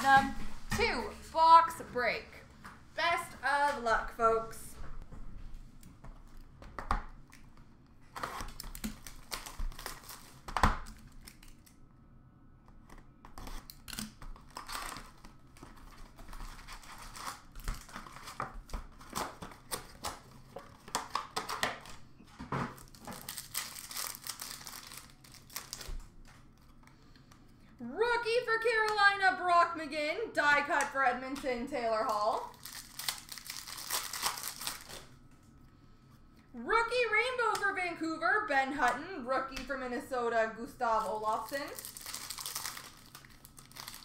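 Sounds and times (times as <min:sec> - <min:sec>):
pack wrappers tearing and crinkling: 0:08.1 - 0:11.8, 0:13.3 - 0:22.0, 0:22.8 - 0:26.8, 0:32.0 - 0:35.2, 0:41.4 - 0:44.0.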